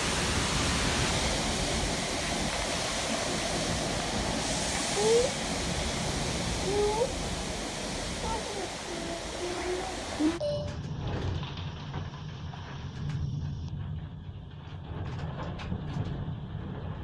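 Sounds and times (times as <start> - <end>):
gusting wind through trees: 0.0 - 10.4.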